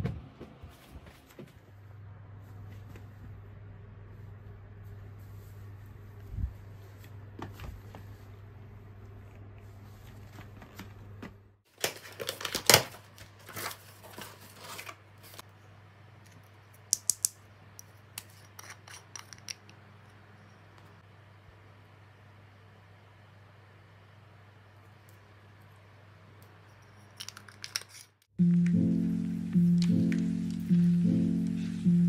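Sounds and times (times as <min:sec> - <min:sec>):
steady low hum: 0:28.4 - 0:32.0.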